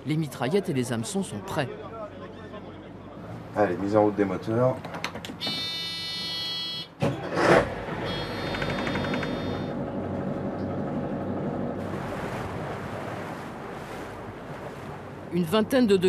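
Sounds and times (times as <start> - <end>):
electronic warning buzzer: 5.4 - 7.0, 8.0 - 9.7
boat engine idling: 7.8 - 15.8.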